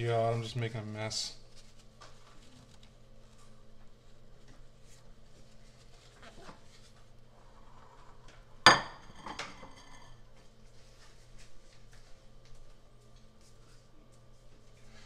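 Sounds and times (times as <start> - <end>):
faint steady hum: 0.0 - 15.0
ceramic bowl clinking: 8.7 - 10.2.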